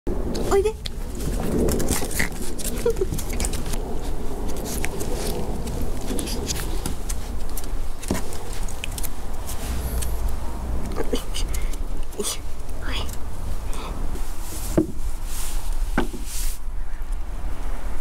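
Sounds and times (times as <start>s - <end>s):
low wind rumble: 0.1s - 18.0s
fur rubbing on microphone: 9.4s - 12.0s, 14.2s - 16.6s.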